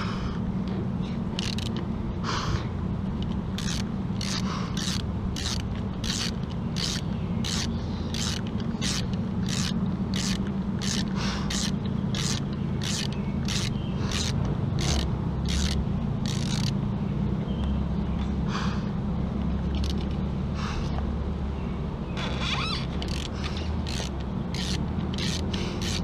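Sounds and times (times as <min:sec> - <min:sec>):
steady low hum: 0:00.0 - 0:26.0
socket ratchet clicking: 0:01.4 - 0:01.9, 0:03.2 - 0:16.8, 0:22.6 - 0:26.0.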